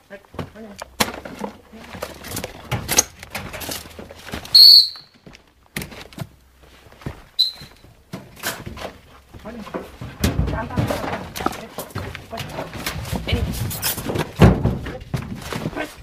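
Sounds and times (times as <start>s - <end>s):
footsteps on rubble: 0.0s - 16.0s
loud high-pitched whistle tone: 4.5s - 5.1s, 7.4s - 7.8s.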